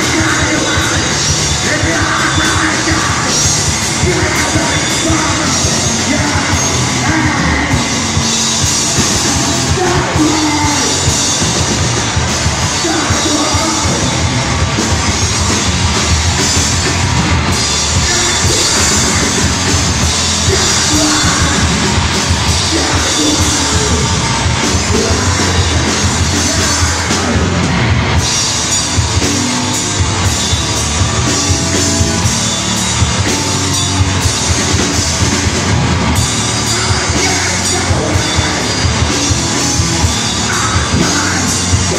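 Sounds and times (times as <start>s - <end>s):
distorted guitars: 0.0s - 41.9s
pounding drums: 0.0s - 41.9s
person shouting vocals: 9.4s - 11.0s, 20.4s - 21.8s.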